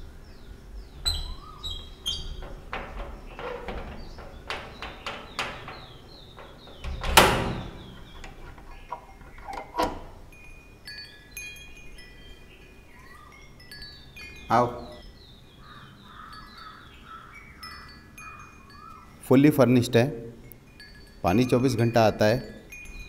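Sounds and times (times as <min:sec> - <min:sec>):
key rattling in door lock: 0:01.0 - 0:10.3
door knocking: 0:02.2 - 0:08.3.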